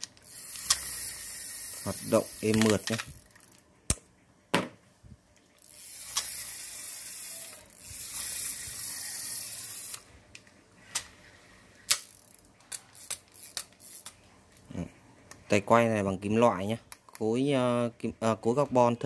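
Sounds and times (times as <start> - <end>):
reel clicks: 0.0 - 4.0, 5.6 - 11.2, 11.8 - 14.2
fishing reel whirring: 0.2 - 3.6, 5.6 - 10.2, 11.8 - 14.1.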